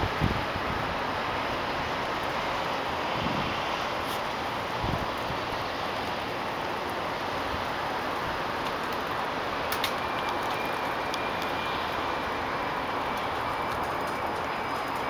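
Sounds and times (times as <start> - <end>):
distant city traffic: 0.0 - 15.0
faint high steady tone: 9.5 - 15.0.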